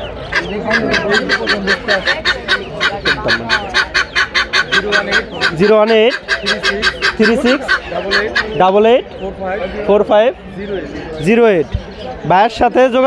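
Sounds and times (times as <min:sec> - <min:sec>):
guineafowl harsh rattling call: 0:00.0 - 0:09.8.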